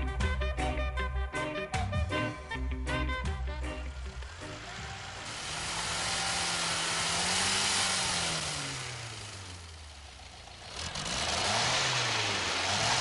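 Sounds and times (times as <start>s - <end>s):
engine revving: 2.8s - 13.0s.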